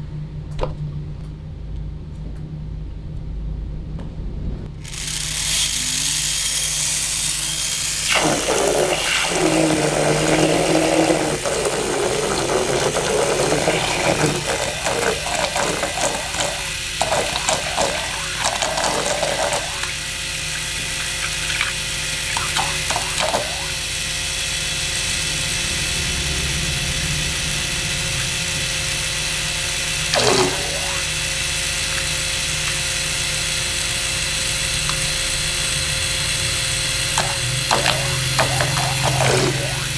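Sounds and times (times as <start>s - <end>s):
high-pitched gear whine: 4.8s - 39.9s
propeller splashing water: 7.7s - 24.2s, 30.1s - 31.4s, 37.1s - 39.9s.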